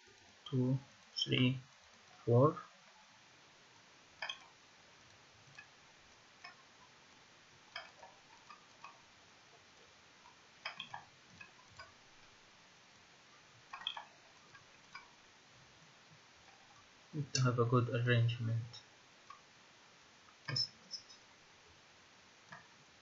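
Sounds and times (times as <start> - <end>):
computer mouse clicks: 4.2 - 5.7.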